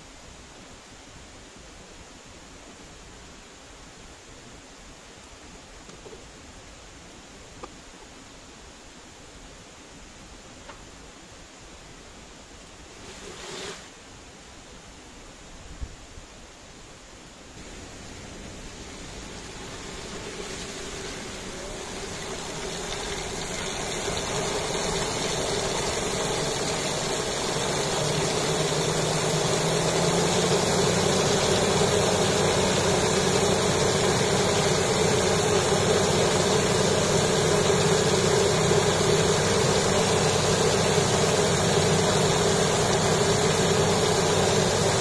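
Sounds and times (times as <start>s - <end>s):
rushing spraying water: 17.5s - 45.0s
turbine humming: 17.6s - 45.0s.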